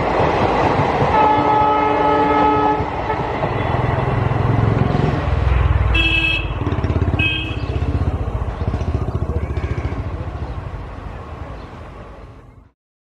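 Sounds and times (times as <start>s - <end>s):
train wheels clattering on rail: 0.0s - 5.5s
train horn toot: 1.1s - 3.2s, 5.9s - 7.6s.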